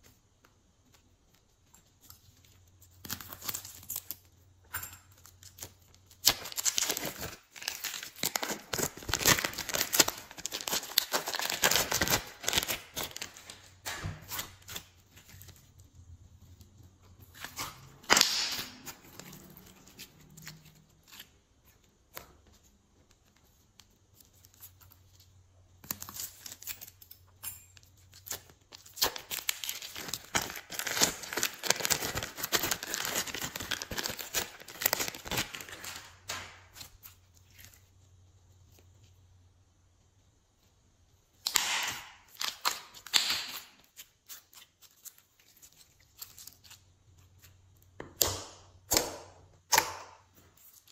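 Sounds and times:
sharp snap: 41.4s - 42.1s.

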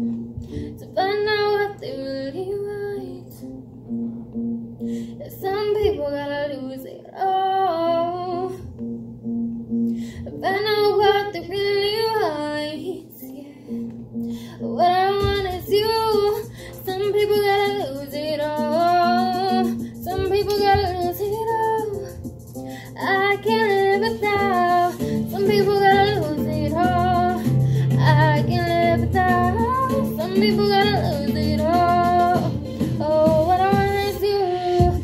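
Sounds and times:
woman singing pop song: 0.0s - 3.7s, 4.8s - 8.9s, 9.9s - 35.0s.

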